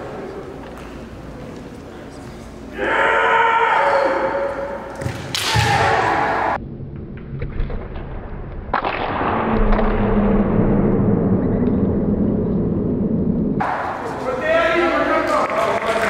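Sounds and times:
people shouting: 2.7s - 6.6s.

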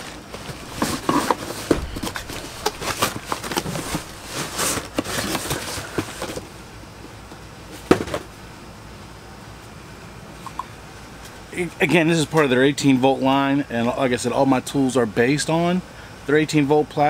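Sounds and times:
cardboard packaging rustling: 0.0s - 6.5s.

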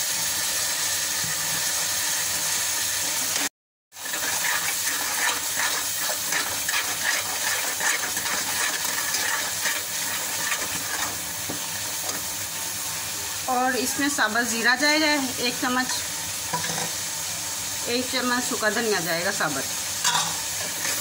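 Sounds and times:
masala sizzling in a pot: 0.0s - 21.0s
ladle scraping a metal pot: 4.0s - 11.3s.

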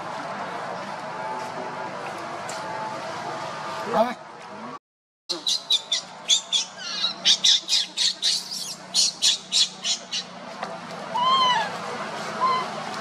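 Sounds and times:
baby monkey squealing: 5.4s - 10.4s, 11.2s - 11.7s, 12.4s - 12.7s
baby monkey whimpers: 6.3s - 10.2s, 11.2s - 11.7s.

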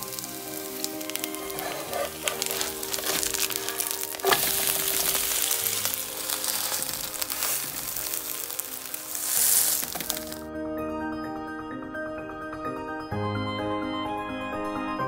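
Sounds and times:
pancake batter sizzling in oil: 0.0s - 10.4s.

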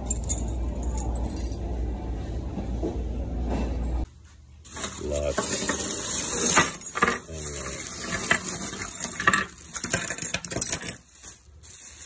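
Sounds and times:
plastic bag crinkling: 4.7s - 10.2s, 10.9s - 12.0s.

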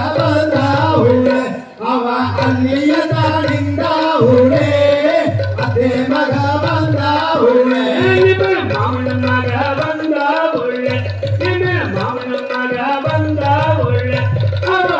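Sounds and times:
voices singing a melody: 0.0s - 11.2s
steady drum beat: 0.0s - 14.9s.

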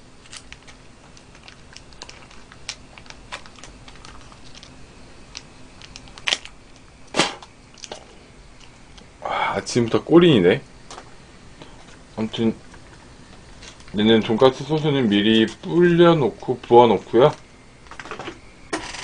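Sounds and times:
plastic sachet crinkling: 0.2s - 6.9s.

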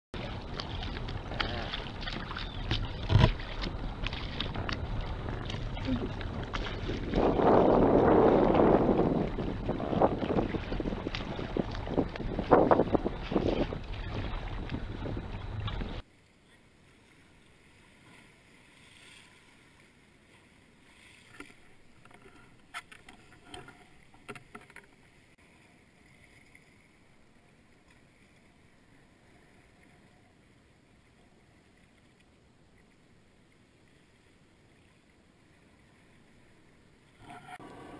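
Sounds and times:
wind buffeting microphone: 0.2s - 16.0s
water lapping on rocks: 0.2s - 16.1s.

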